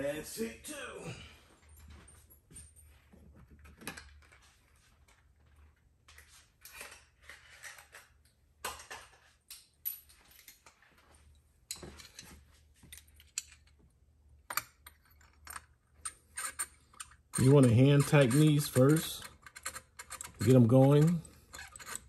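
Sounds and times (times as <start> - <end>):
small metal tools clicking: 14.5 - 22.0.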